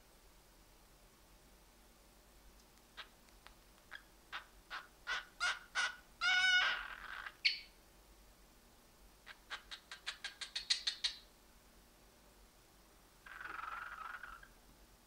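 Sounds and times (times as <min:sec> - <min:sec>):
cockatiel raspy call: 0:03.9 - 0:07.6
cockatiel clicking chirps: 0:09.3 - 0:11.2.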